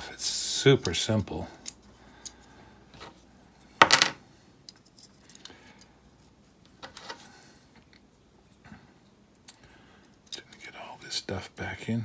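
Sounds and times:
faint clicks of plastic parts: 0.8s - 3.2s, 4.6s - 10.7s
plastic part clattering onto table: 3.8s - 4.2s.

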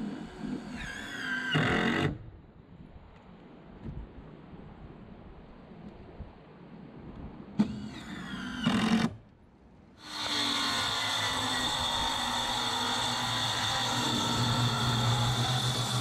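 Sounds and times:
motor whining: 10.0s - 16.0s.

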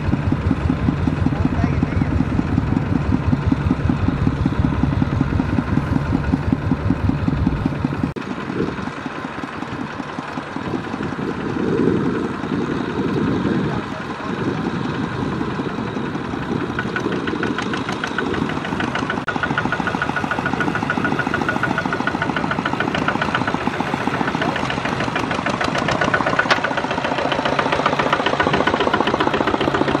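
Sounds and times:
tiller churning mud: 0.0s - 30.0s
tractor diesel engine running: 0.0s - 30.0s
fast even ticking: 16.6s - 30.0s.

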